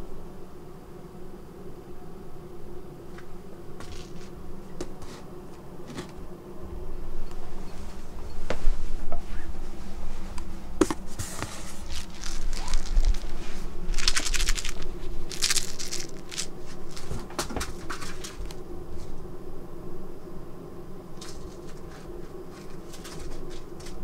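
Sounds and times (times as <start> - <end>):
cat toy crinkling: 11.8 - 17.2.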